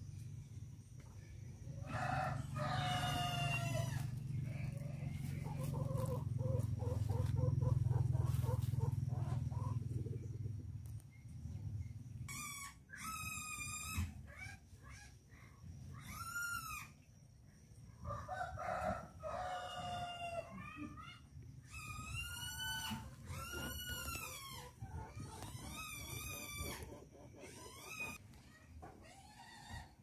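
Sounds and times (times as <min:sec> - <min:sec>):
rooster crowing: 0:01.8 - 0:08.6, 0:18.0 - 0:20.6
chicken clucking: 0:01.8 - 0:10.6, 0:22.7 - 0:29.0.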